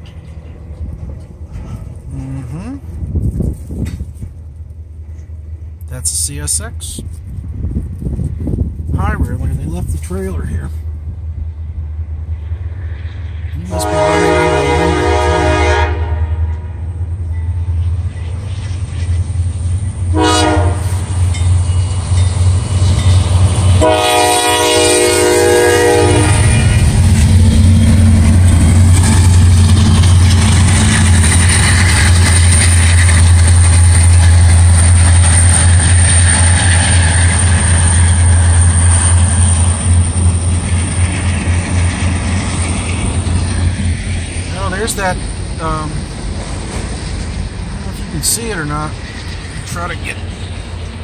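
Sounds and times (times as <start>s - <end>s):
diesel locomotive engines rumbling: 0.0s - 51.0s
train horn blasts: 13.6s - 16.8s, 20.1s - 21.1s, 23.8s - 26.8s.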